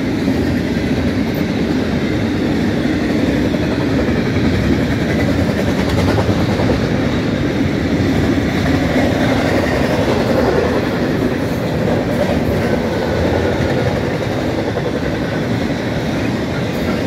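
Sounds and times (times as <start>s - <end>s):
train wheels on rail: 0.0s - 17.0s.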